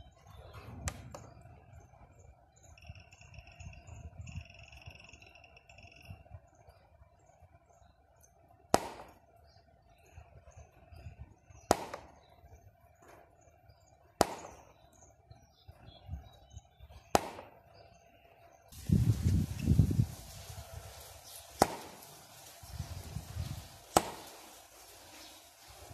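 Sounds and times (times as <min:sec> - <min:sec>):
studio flash popping: 0:21.2 - 0:25.2.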